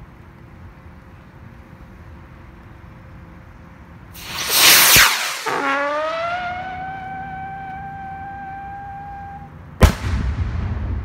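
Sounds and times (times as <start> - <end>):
firework rocket whoosh: 4.1 - 8.6
rocket whistle: 4.2 - 9.6.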